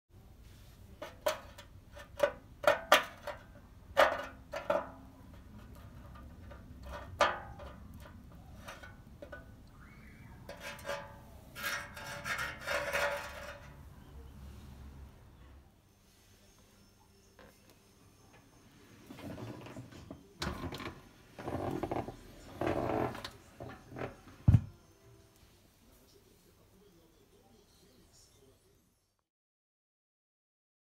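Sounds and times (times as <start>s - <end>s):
fork scraping metal oven tray: 10.5s - 13.8s.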